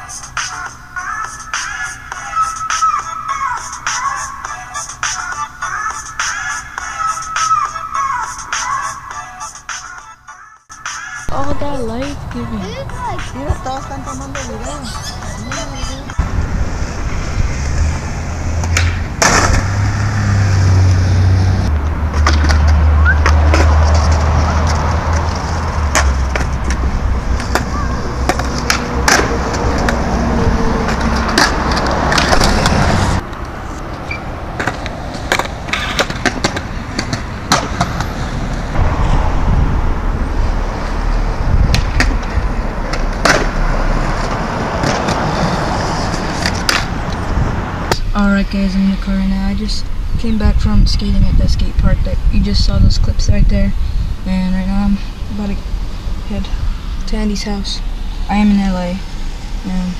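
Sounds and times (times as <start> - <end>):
skateboard wheels rolling on concrete: 10.8 - 48.0
skateboard clacks: 27.4 - 30.0, 30.9 - 32.9, 34.6 - 38.0, 41.7 - 43.6, 46.0 - 47.0.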